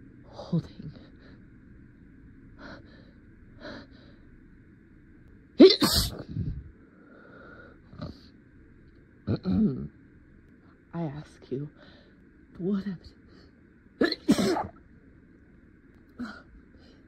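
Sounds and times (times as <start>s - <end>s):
breaths: 2.6s - 4.3s, 6.3s - 7.9s, 11.8s - 12.3s
person sneezing: 5.6s - 6.3s, 14.0s - 14.8s.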